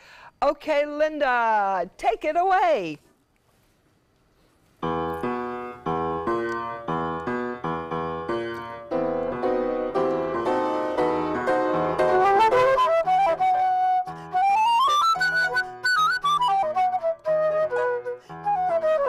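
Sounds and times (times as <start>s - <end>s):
upright piano playing chords: 4.8s - 16.4s
flute rising line: 12.0s - 19.0s.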